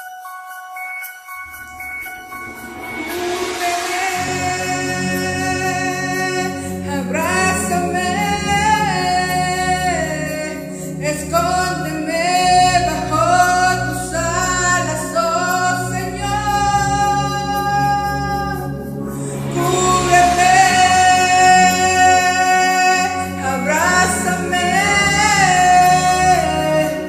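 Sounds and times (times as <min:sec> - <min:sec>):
karaoke backing track: 0:00.0 - 0:27.0
woman singing: 0:03.2 - 0:18.7, 0:19.3 - 0:27.0.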